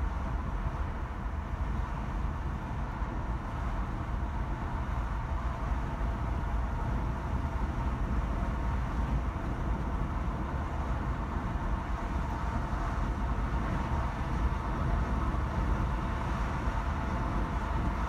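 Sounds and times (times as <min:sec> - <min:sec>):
car driving rumble: 0:00.0 - 0:18.0.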